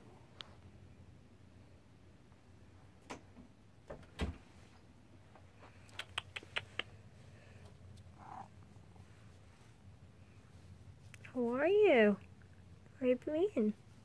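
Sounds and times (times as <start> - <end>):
sharp clicks: 5.9 - 7.0.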